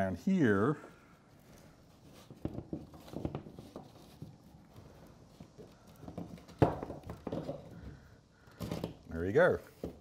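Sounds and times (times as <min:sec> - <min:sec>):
cables knocking against box: 0:05.4 - 0:08.0.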